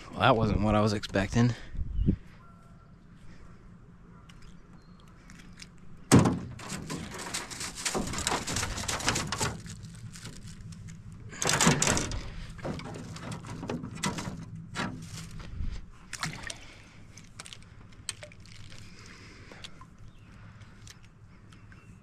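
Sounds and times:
fishing gear clattering and rustling: 4.4s - 21.2s.

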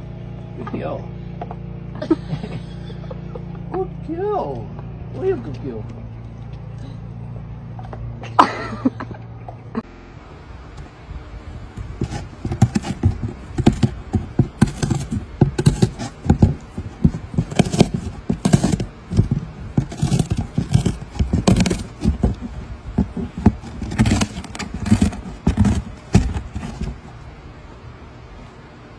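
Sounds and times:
cat chewing cardboard: 11.7s - 27.2s.

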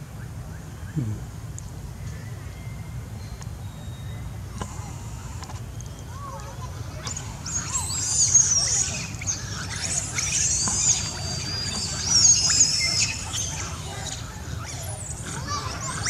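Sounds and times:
monkeys squealing screams: 6.9s - 16.0s.

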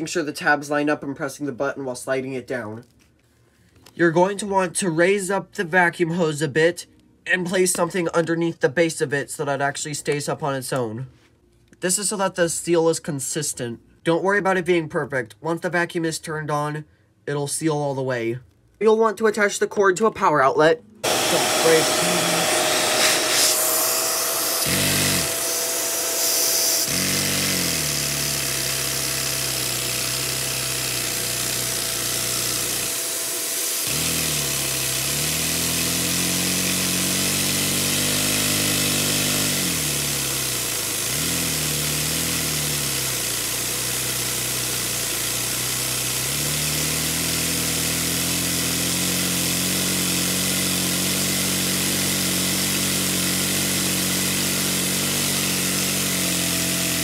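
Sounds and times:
small engine fast buzz: 21.0s - 57.0s
vacuum cleaner whine: 21.0s - 57.0s.

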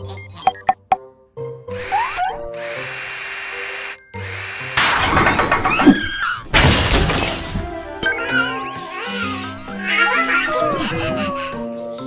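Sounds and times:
cartoon drill whirring: 1.7s - 6.5s, 8.0s - 11.3s
cartoon mishap sound effects: 1.8s - 3.0s, 8.0s - 11.6s
cheerful music: 7.1s - 12.0s.

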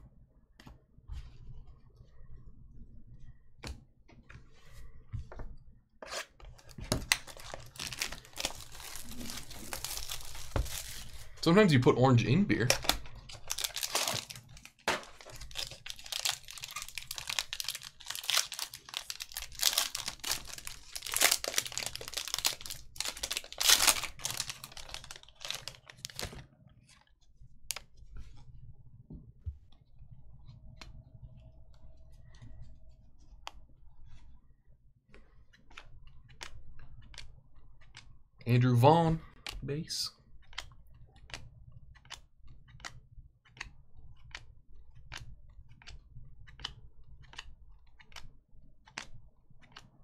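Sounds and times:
foil pack crinkling and ripping: 7.1s - 11.4s, 12.8s - 26.4s.

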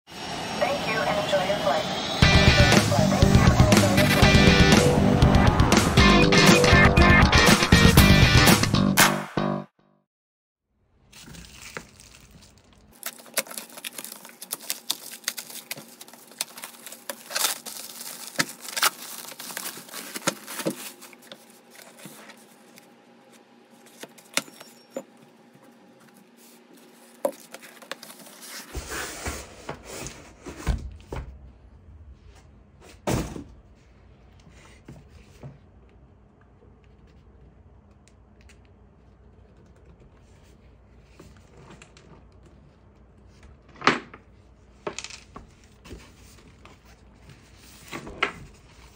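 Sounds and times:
plastic wrap crackling: 11.0s - 22.4s
knife cutting plastic wrap: 11.1s - 22.4s
cardboard being handled: 11.1s - 22.8s.

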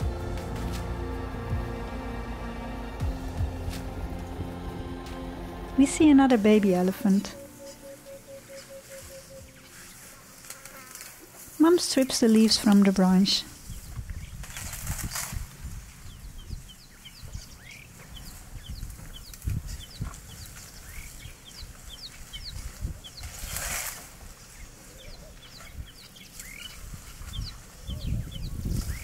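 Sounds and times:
low rumble: 0.0s - 9.7s
small birds chirping: 7.6s - 10.2s, 11.6s - 23.4s, 24.2s - 29.0s.

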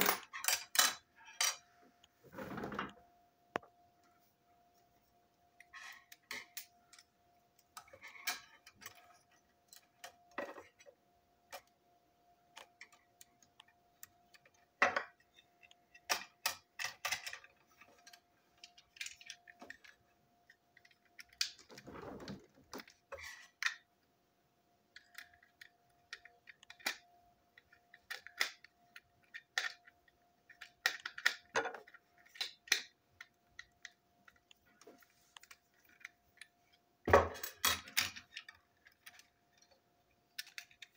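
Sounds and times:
small plastic parts clicking: 12.4s - 21.8s, 24.8s - 40.9s.

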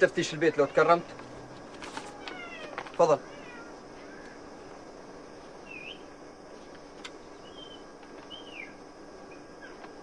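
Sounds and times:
steady outdoor hiss: 0.0s - 10.0s
bird chirps: 5.6s - 6.2s, 7.3s - 9.8s.

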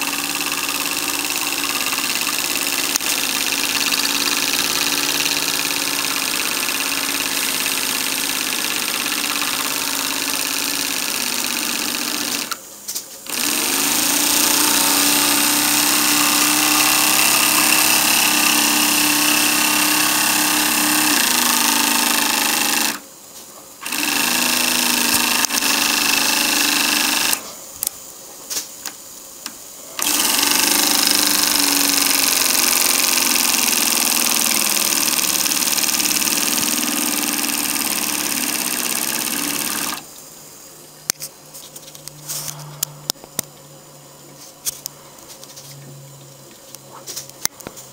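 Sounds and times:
model steam engine running: 0.0s - 12.6s, 13.3s - 23.0s, 23.8s - 27.4s, 30.0s - 40.1s.

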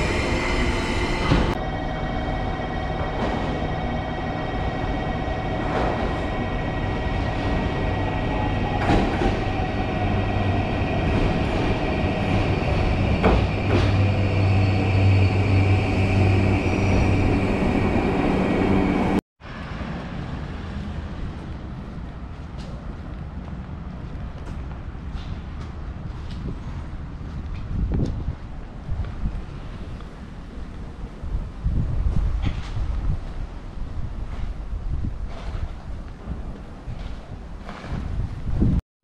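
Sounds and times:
low hum: 0.0s - 19.2s
train motor whine: 0.0s - 19.2s
street noise: 0.0s - 38.8s
train rumbling into station: 0.0s - 38.8s
wind on microphone: 25.3s - 38.8s.

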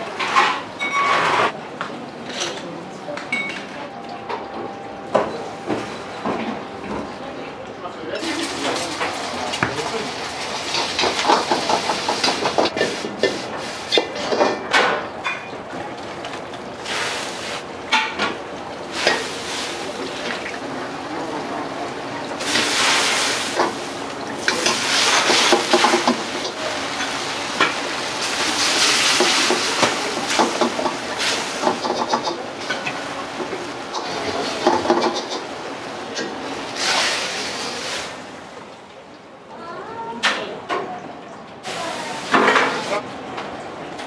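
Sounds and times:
gas burner roar: 8.2s - 15.0s, 16.0s - 38.6s
loud hiss from pan: 36.8s - 38.1s.

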